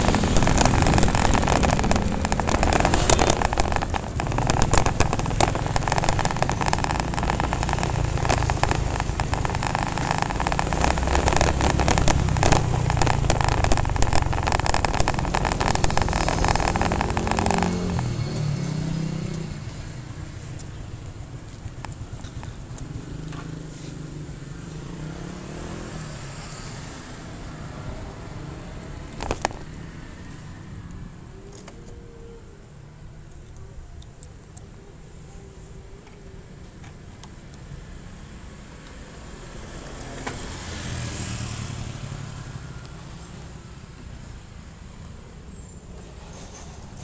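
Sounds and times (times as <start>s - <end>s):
motorcycle engine: 0.0s - 20.7s.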